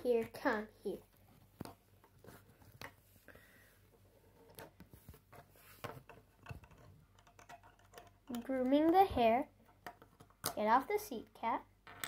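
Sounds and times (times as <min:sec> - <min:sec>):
plastic pieces clicking and rubbing: 0:04.4 - 0:10.9.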